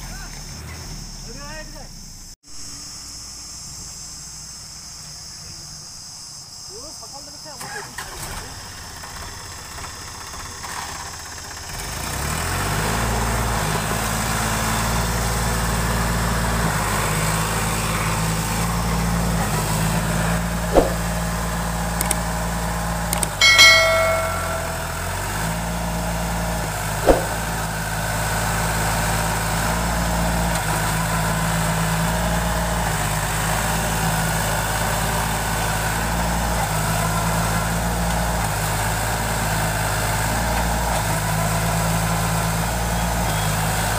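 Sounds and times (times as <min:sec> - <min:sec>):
sharp clicks: 0:23.1 - 0:23.4
short ringing tone: 0:23.3 - 0:25.4, 0:27.1 - 0:27.5.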